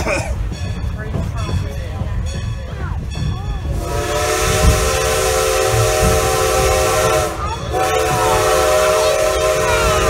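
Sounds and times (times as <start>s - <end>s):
low rumble of moving train: 0.0s - 10.0s
steam hissing: 3.7s - 10.0s
steam whistle blast: 3.8s - 10.0s.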